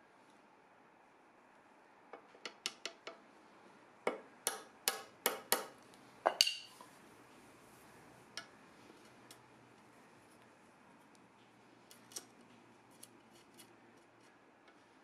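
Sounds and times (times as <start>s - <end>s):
hammer striking chisel handle: 4.1s - 6.7s.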